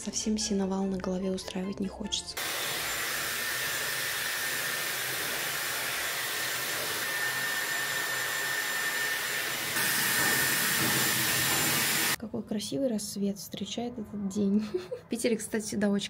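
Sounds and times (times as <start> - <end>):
hair dryer blowing: 2.4 - 12.2.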